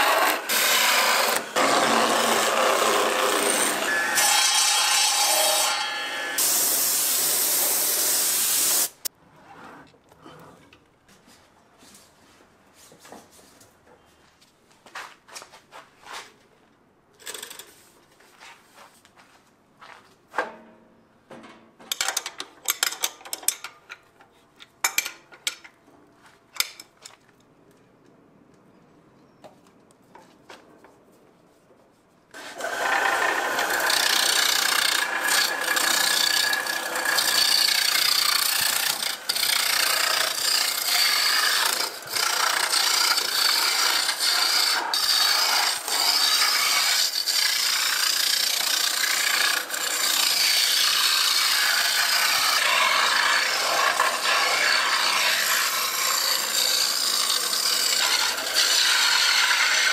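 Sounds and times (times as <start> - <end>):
lathe gouge scraping spinning wood: 0.0 - 6.3, 32.4 - 59.9.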